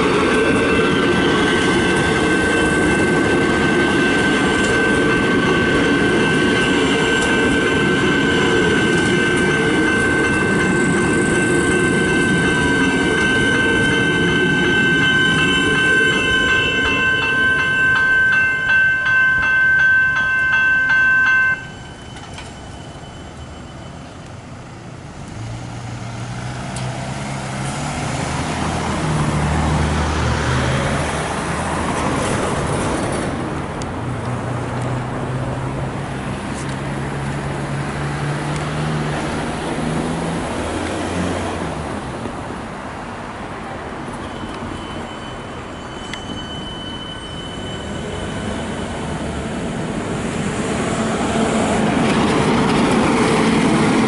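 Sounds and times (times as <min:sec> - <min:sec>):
level crossing warning bell: 0:00.0 - 0:24.5, 0:44.0 - 0:49.9
electric trains rumbling: 0:00.0 - 0:54.0
road vehicle engine: 0:23.3 - 0:46.3, 0:47.0 - 0:54.0.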